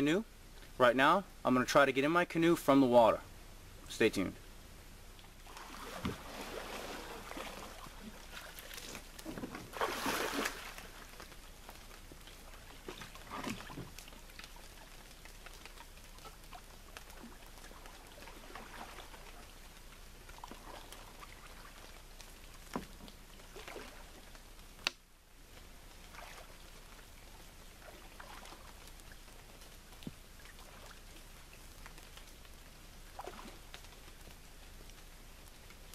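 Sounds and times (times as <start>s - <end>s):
faint hiss: 0.0s - 35.9s
water splashing: 5.1s - 24.8s, 25.8s - 34.4s
paddle strokes splashing: 5.2s - 24.9s, 25.6s - 34.6s.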